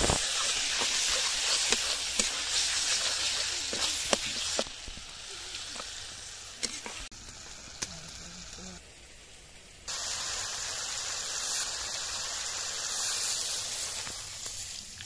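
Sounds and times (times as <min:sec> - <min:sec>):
spatula scraping and knocking pan: 0:00.0 - 0:04.7
paste sizzling in hot oil: 0:00.0 - 0:08.7, 0:09.9 - 0:15.0.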